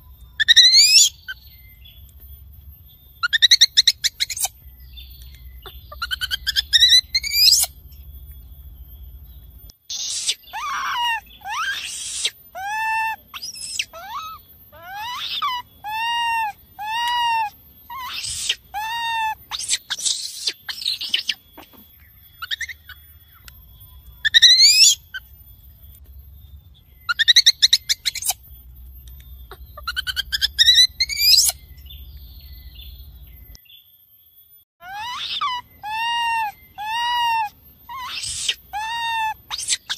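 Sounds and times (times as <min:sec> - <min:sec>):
baby monkey shrill cries: 0:00.4 - 0:01.4, 0:03.2 - 0:04.6, 0:05.6 - 0:07.8, 0:09.9 - 0:23.5, 0:24.2 - 0:25.3, 0:27.1 - 0:28.4, 0:29.4 - 0:31.6, 0:34.8 - 0:39.9.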